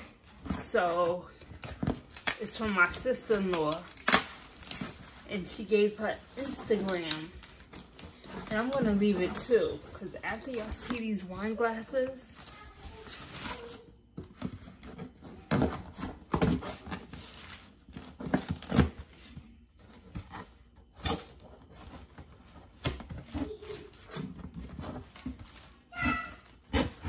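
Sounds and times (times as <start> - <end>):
packaging tearing and crinkling: 1.9 - 5.3, 6.2 - 8.2, 16.5 - 19.0.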